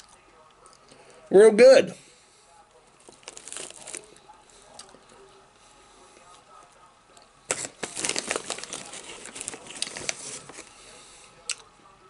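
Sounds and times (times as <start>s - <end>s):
plastic chip bag crinkling: 2.9s - 5.2s, 7.5s - 10.8s.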